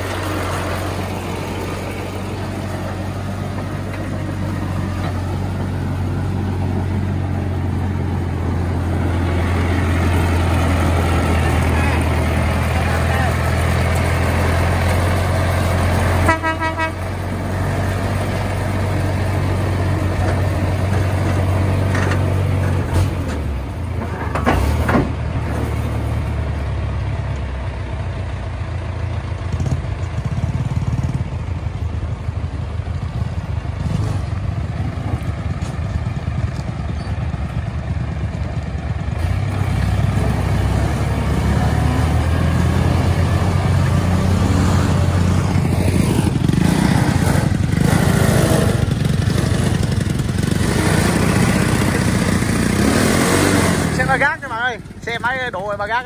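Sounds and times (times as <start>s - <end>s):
tractor diesel engine running: 0.0s - 56.0s
horn toot: 16.2s - 17.1s.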